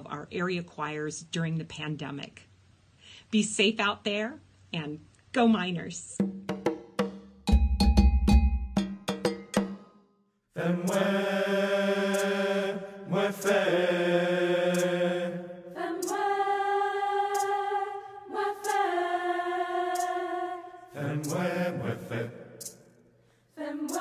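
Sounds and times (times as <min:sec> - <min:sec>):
choir singing held chords: 0:10.5 - 0:24.0.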